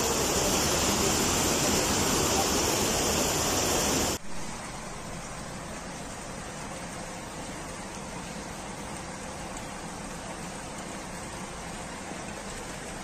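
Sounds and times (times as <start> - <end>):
water hissing: 0.0 - 4.2
floodwater rushing: 0.0 - 13.0.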